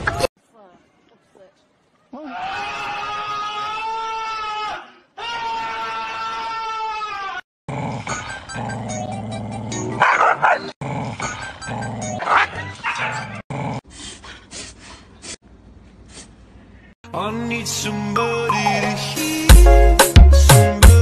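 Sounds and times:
music with steady beat: 19.2s - 21.0s.

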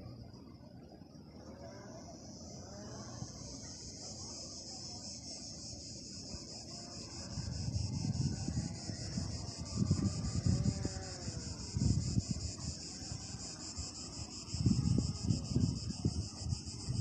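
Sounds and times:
cicadas singing: 0.0s - 17.0s
wind buffeting microphone: 6.3s - 17.0s.

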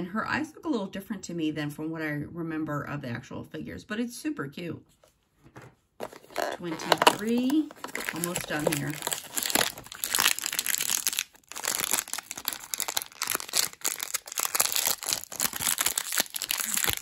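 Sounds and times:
wrapper bag crinkling: 6.0s - 17.0s.

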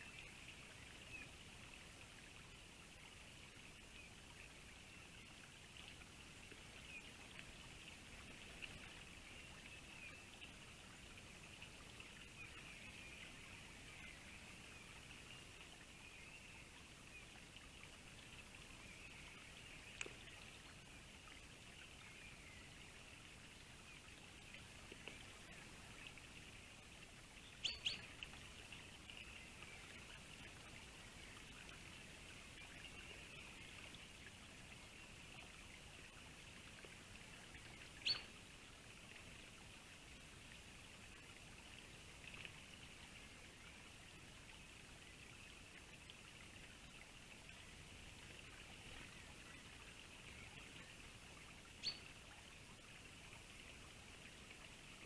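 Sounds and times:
distant birdsong: 27.5s - 28.2s.

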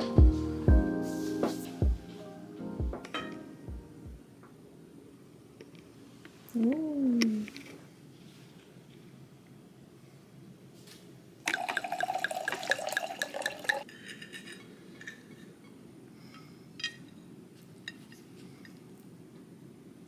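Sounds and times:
wine glugging into a glass: 11.5s - 13.9s.

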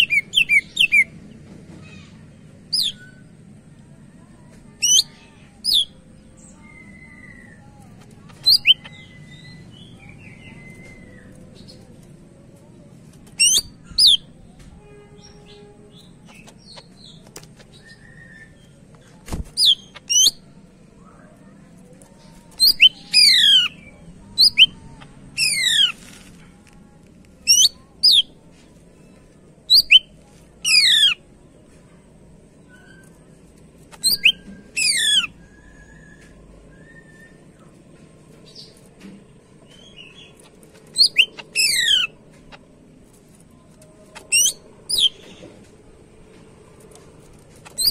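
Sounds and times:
bird singing whistled notes: 8.4s - 11.3s, 29.7s - 30.1s, 34.0s - 37.4s, 41.0s - 42.1s.

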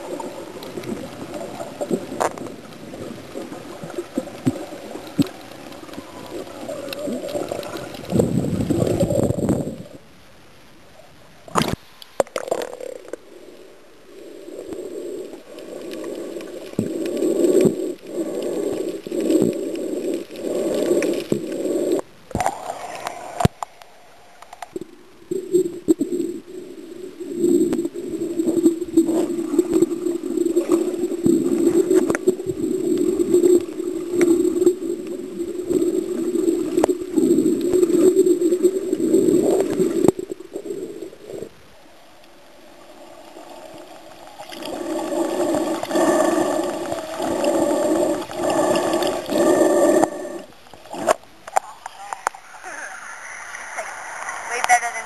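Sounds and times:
underwater rushing water: 0.0s - 55.0s.

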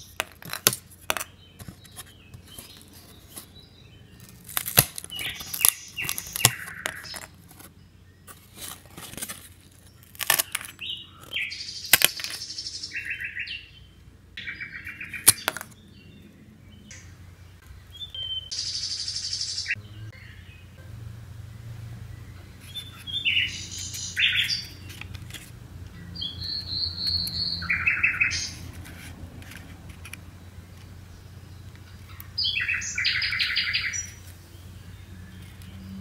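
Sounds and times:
card puzzle pieces snapping: 0.0s - 3.0s, 4.2s - 7.7s, 8.6s - 12.4s, 15.2s - 15.8s
bird chirping in fast trills: 1.2s - 8.6s, 9.8s - 20.8s, 21.4s - 25.1s, 25.9s - 28.8s, 30.2s - 36.0s.

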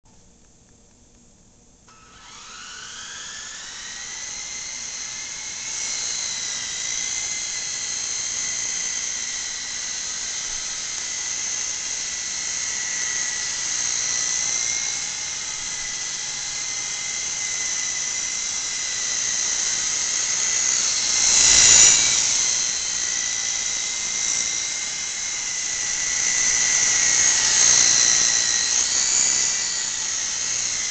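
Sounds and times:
toy helicopter motors whining: 1.9s - 30.9s.

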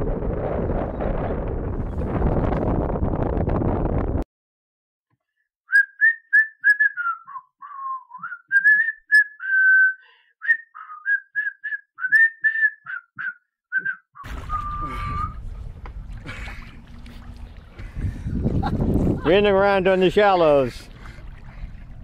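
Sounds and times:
wind on microphone: 0.0s - 4.2s, 14.3s - 22.0s
person whistling a tune: 5.7s - 15.4s.

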